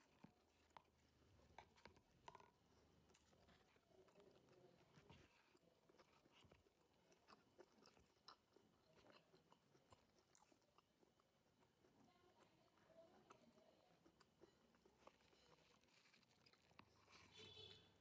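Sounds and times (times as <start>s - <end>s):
chewing raw vegetables: 0.0s - 18.0s.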